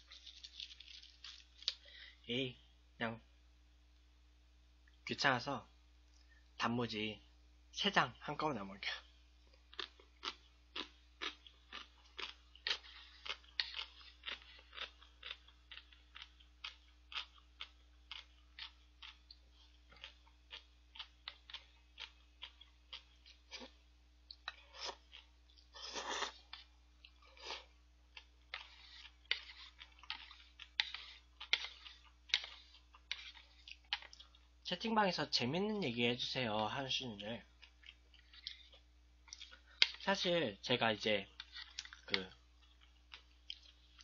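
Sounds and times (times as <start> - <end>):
crunchy chewing: 0.0 - 1.8, 9.5 - 34.5.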